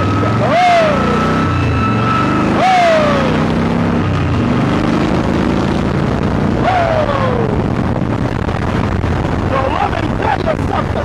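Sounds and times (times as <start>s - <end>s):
motorcycle engine running: 0.0s - 11.0s
wind rushing over microphone: 0.0s - 11.0s
man shouting whoo: 0.4s - 1.2s, 2.6s - 3.4s, 6.6s - 7.6s.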